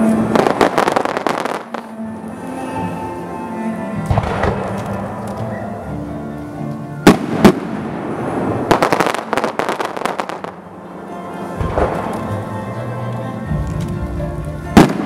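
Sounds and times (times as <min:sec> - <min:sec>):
crackling firework pops: 0:07.1 - 0:07.8, 0:14.8 - 0:15.0.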